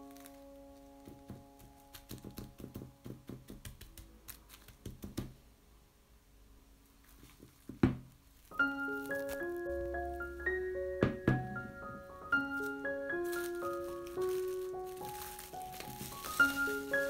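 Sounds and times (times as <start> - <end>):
cling film crinkling: 0.0 - 2.8, 7.0 - 10.7, 12.0 - 17.0.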